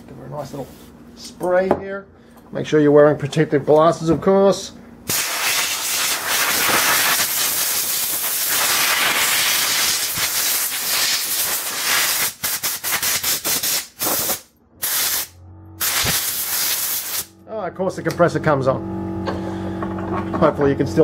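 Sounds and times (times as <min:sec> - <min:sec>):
hissing spray jet: 0:05.1 - 0:17.3.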